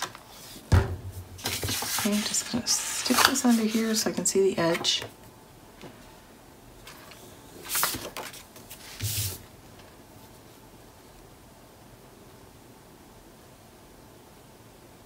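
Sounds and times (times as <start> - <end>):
paper rustling: 0.0 - 5.1, 6.8 - 10.5.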